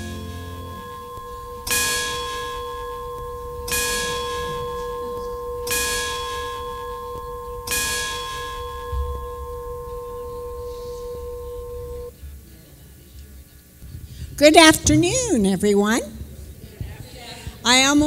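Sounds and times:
bell ringing: 0:00.0 - 0:12.1.

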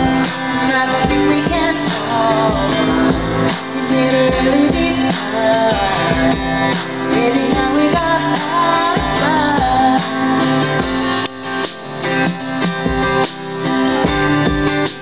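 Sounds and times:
woman singing: 0:00.0 - 0:11.1
acoustic guitars strumming: 0:00.0 - 0:15.0.

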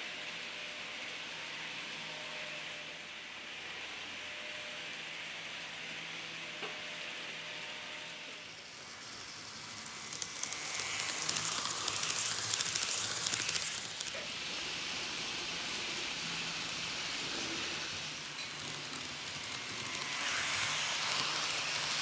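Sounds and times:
model train motor hissing: 0:08.4 - 0:22.0.

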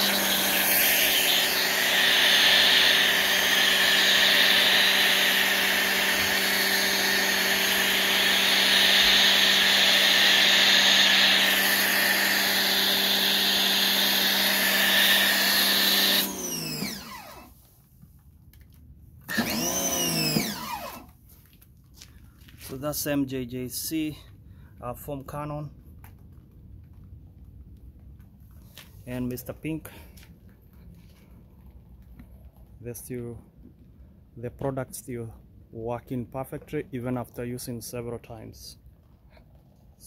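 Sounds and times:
motor winding down whine: 0:00.0 - 0:17.6, 0:19.3 - 0:21.1
pressure washer motor humming: 0:00.0 - 0:17.6, 0:19.3 - 0:21.1.

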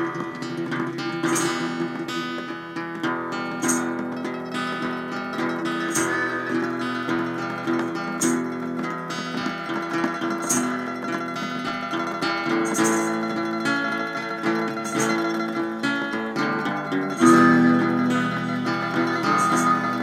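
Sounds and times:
sharp percussion hit: 0:00.0 - 0:02.8, 0:03.4 - 0:12.0, 0:12.6 - 0:14.0, 0:17.1 - 0:20.0
plucked acoustic guitar music: 0:00.0 - 0:20.0.

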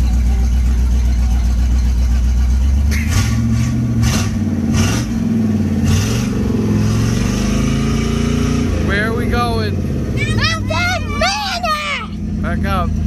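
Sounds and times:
pickup truck engine revving: 0:00.0 - 0:13.0.

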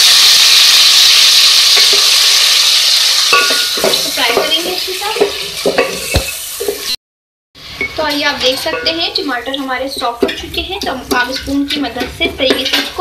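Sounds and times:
tomatoes sizzling in hot oil: 0:00.0 - 0:07.0, 0:07.6 - 0:13.0
wooden spoon scraping metal pot: 0:07.7 - 0:13.0.

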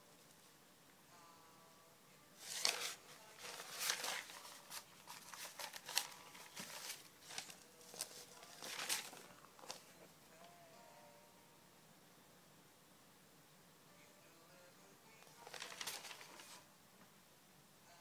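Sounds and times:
paper rustling: 0:02.4 - 0:09.9, 0:15.3 - 0:16.6.

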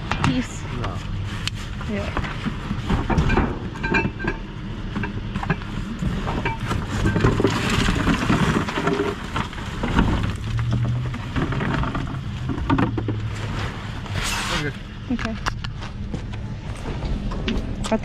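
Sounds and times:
steady low hum: 0:00.0 - 0:18.0
cardboard rustling and sliding: 0:13.2 - 0:14.8.

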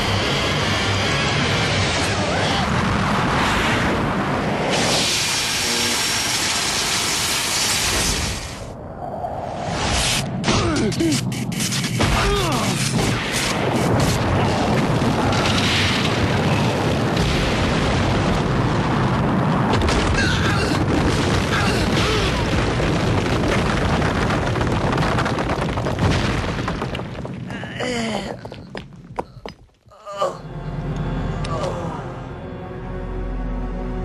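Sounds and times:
heavy earthquake rumble: 0:00.0 - 0:06.6, 0:08.0 - 0:29.9
rocks crashing and tumbling: 0:13.0 - 0:29.9.

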